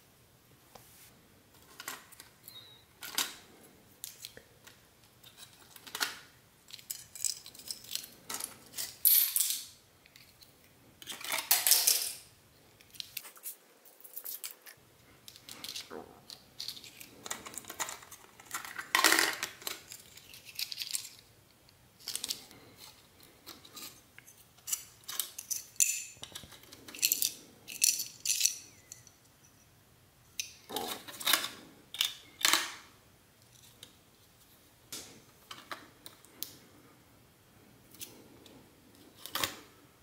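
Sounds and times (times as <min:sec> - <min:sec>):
laptop parts clicking and clattering: 0:03.0 - 0:12.2, 0:14.0 - 0:29.3.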